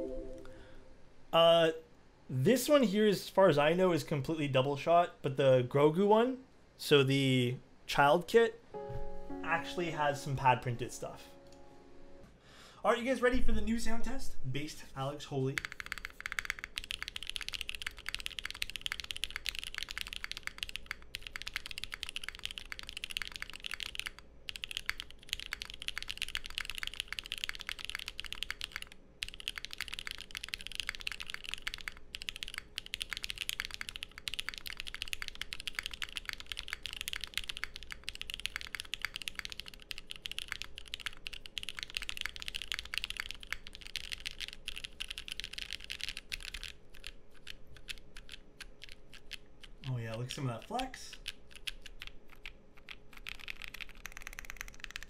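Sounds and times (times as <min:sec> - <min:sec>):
fast mechanical keyboard typing: 0:15.4 - 0:55.0.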